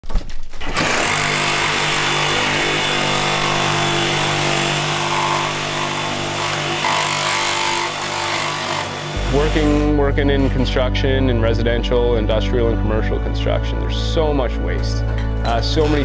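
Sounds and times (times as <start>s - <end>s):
power tool motor whirring: 0.6s - 9.9s.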